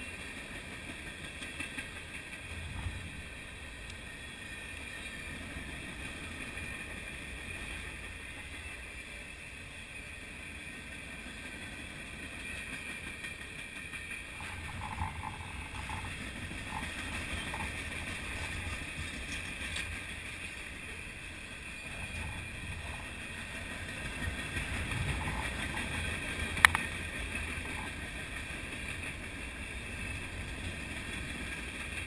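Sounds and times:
freight train rolling past: 0.0 - 32.0
train wheels squeaking: 0.0 - 32.0.

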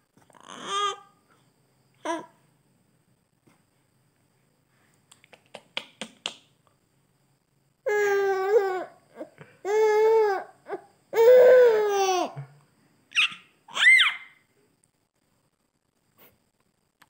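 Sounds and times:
baby mouth clicks and breaths: 4.9 - 6.4
baby high-pitched calls: 13.1 - 14.4.

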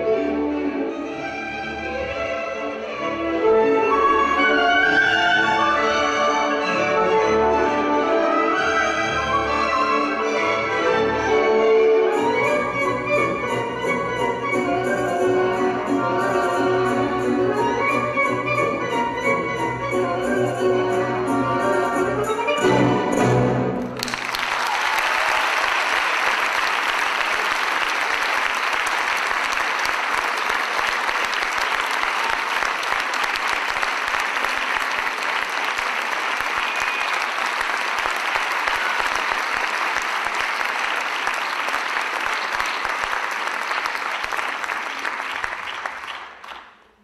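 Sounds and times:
orchestral music: 0.0 - 24.2
audience applauding: 23.8 - 47.0.

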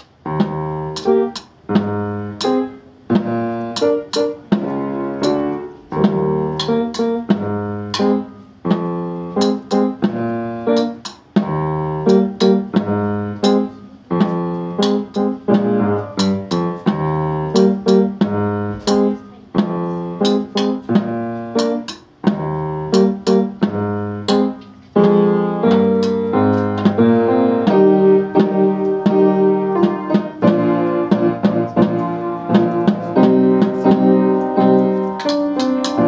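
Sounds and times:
solo keyboard tune: 0.0 - 36.0.

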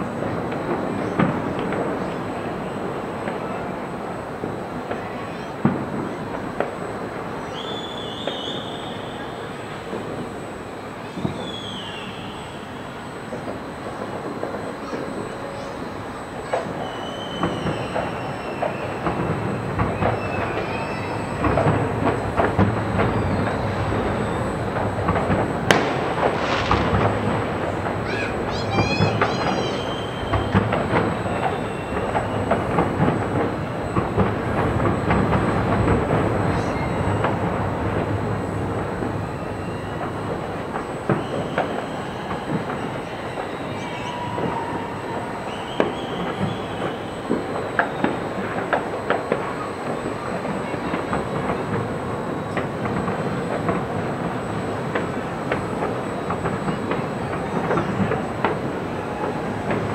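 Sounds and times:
distant fireworks popping: 0.0 - 59.9
train wheels squealing: 7.3 - 9.8, 11.0 - 22.3, 22.9 - 24.6, 28.1 - 32.8, 36.3 - 38.4, 39.1 - 51.0
train rumble: 8.7 - 59.9
brief high squeals: 14.8 - 19.2, 19.9 - 21.6, 28.0 - 30.6, 41.1 - 47.3.

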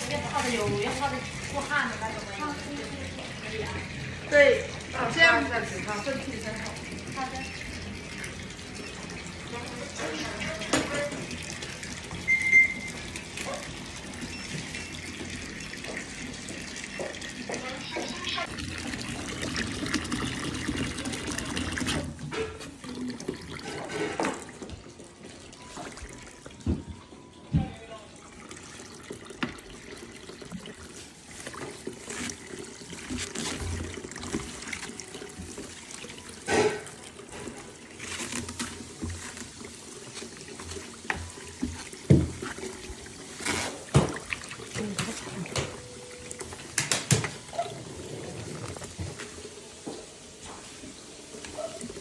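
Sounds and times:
water sloshing and trickling: 0.0 - 52.0
plastic liner crinkling: 31.2 - 35.0
sharp knocks or splashes: 43.5 - 45.8.

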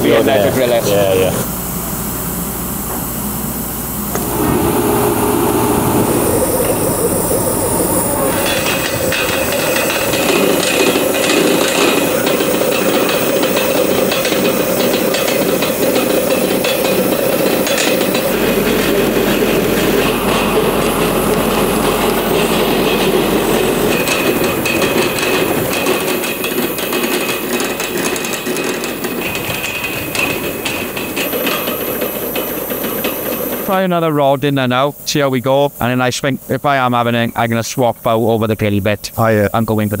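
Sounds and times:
faint high whine: 3.8 - 29.6
drill rod rattling: 4.1 - 33.7
rushing noise: 4.1 - 33.7.

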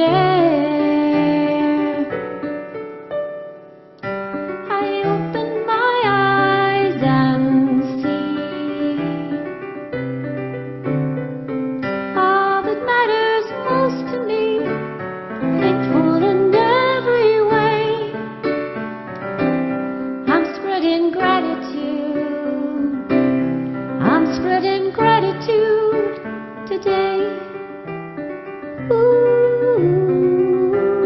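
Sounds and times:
woman singing with vibrato: 0.0 - 2.2, 4.6 - 9.5, 12.2 - 14.8, 15.5 - 18.2, 20.3 - 23.1, 24.0 - 27.5, 28.8 - 31.0
digital piano chords: 0.0 - 31.0.

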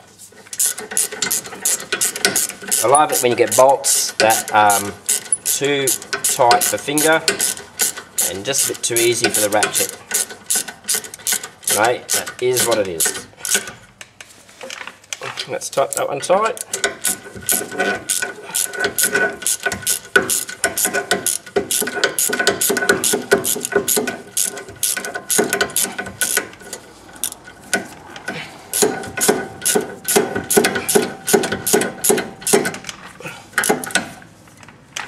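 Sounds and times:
socket ratchet clicking: 0.6 - 13.7, 16.6 - 26.6.

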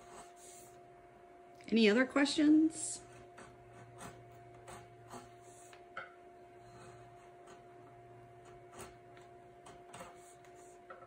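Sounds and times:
steady electrical hum: 0.0 - 11.0
hand tool scratching wood: 3.0 - 5.8, 6.7 - 10.8.

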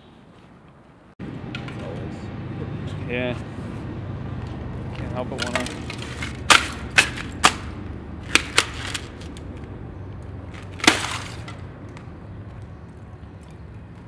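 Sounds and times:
boots crunching through brittle crust: 10.5 - 11.6.

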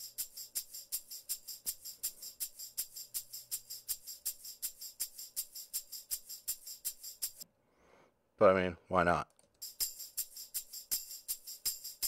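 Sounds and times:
tambourine and shaker jingling: 0.0 - 7.4, 9.6 - 12.0.

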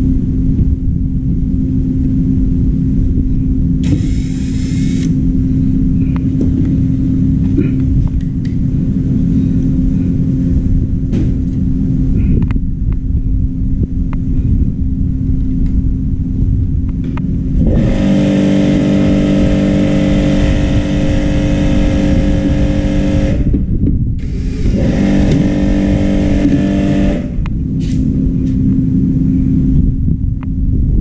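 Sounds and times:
steady machine hum: 0.0 - 31.0
motor with hiss: 3.8 - 5.2, 24.2 - 27.3.

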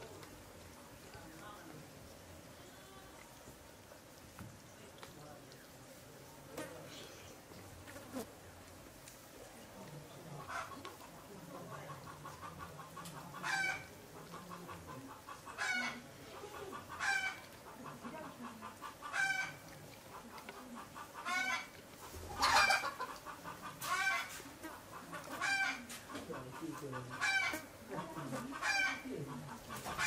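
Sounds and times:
chicken calling: 21.0 - 24.4.

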